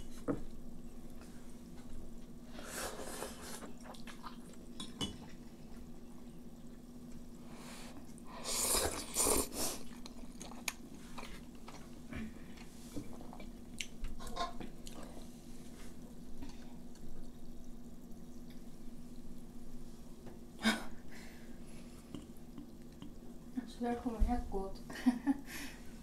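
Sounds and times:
faint steady hum: 0.0 - 26.0
chewing: 3.6 - 5.9, 8.1 - 14.2
noodles slurped: 8.3 - 11.5.

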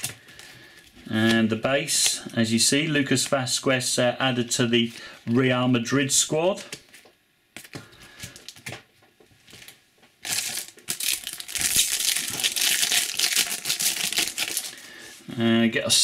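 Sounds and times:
plastic foil wrapper crinkling: 9.5 - 15.0.

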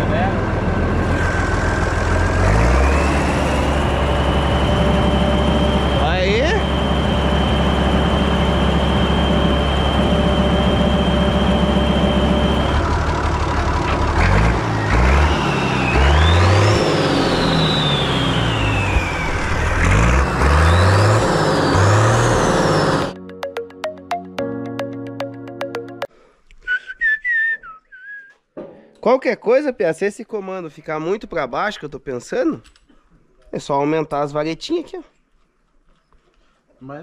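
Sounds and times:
tractor diesel engine revving: 0.0 - 23.2
turbo whistle: 26.6 - 28.4.

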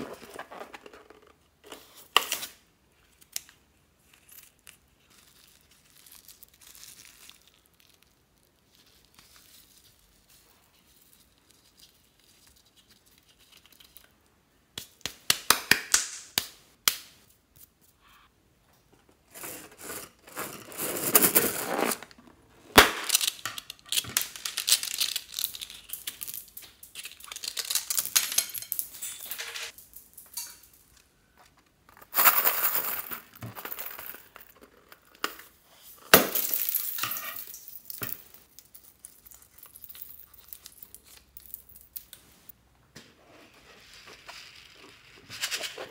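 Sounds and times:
balloons crinkling and crackling: 4.1 - 14.0, 20.1 - 28.2.

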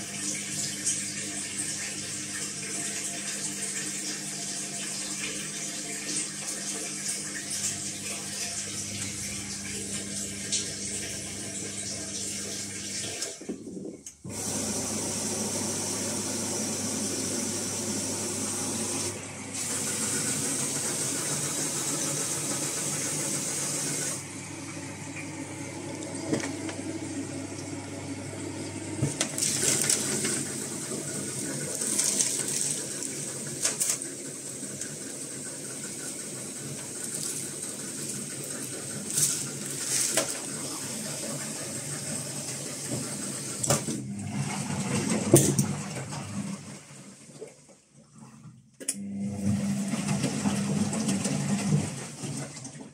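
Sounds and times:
washing machine hum: 0.0 - 52.9
water filling rush: 14.3 - 47.2.

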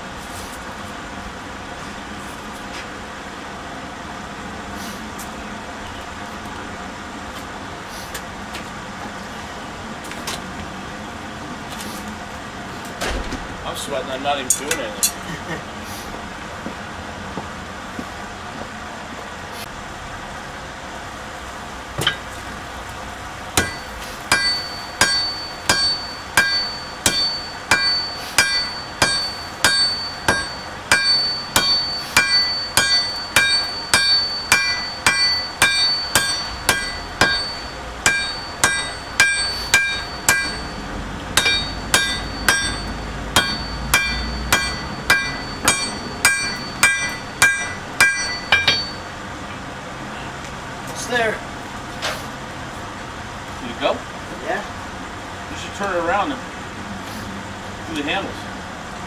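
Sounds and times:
hammer striking steel on anvil: 14.4 - 15.2, 22.0 - 22.4, 23.6 - 49.1.

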